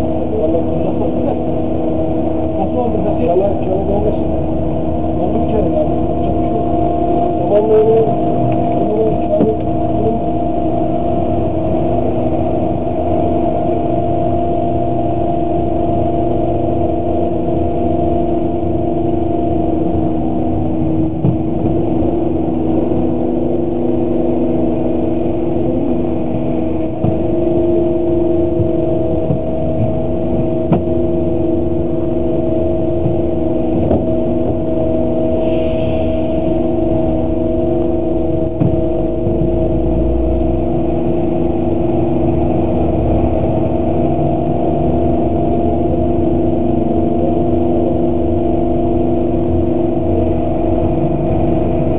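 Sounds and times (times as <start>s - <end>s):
bus engine drone: 0.0s - 51.9s
road rumble: 0.0s - 51.9s.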